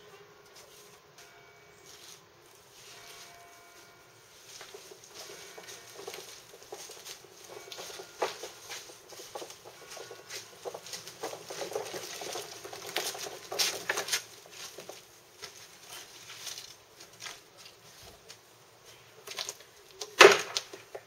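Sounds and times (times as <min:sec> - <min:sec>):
footsteps on paving: 0:01.8 - 0:21.0
hand cart rattling over paving: 0:04.4 - 0:21.0.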